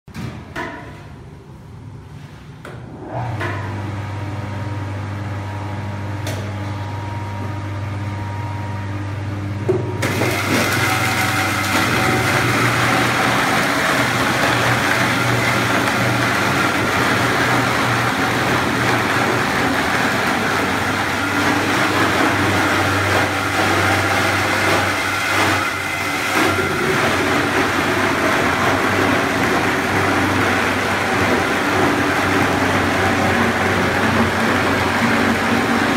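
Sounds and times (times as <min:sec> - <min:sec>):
electric grinder motor hum: 0:10.0 - 0:35.9.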